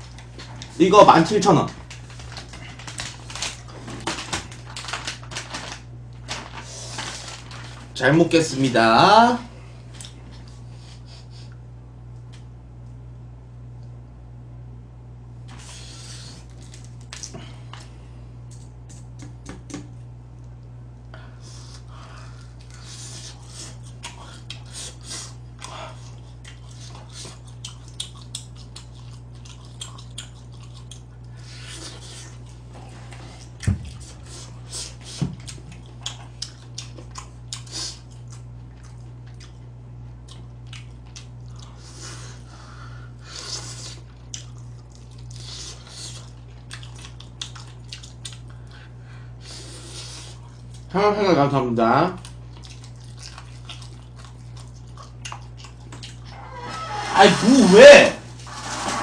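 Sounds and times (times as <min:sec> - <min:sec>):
crunchy chewing of fried chicken: 0:00.0 - 0:08.0, 0:15.5 - 0:19.5, 0:20.5 - 0:50.9, 0:52.1 - 0:56.5
steady low hum: 0:00.0 - 0:59.0.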